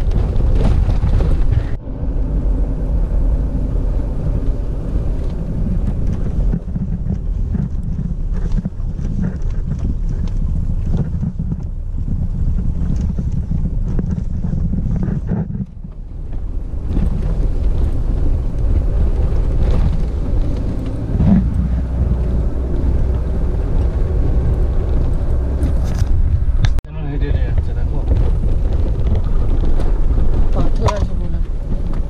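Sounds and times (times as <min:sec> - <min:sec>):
engine and road rumble: 0:00.0 - 0:32.0
wind buffeting microphone: 0:00.0 - 0:32.0
stones knocking and rattling: 0:05.1 - 0:26.8.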